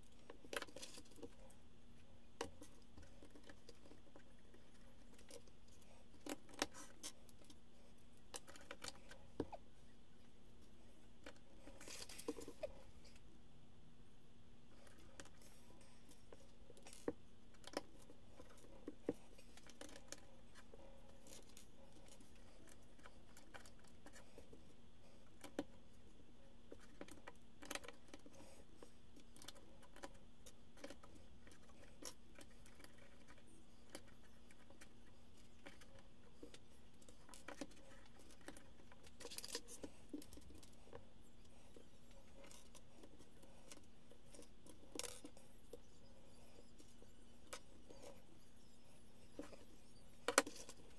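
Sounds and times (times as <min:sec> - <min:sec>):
faint steady hum: 0:00.0 - 0:50.9.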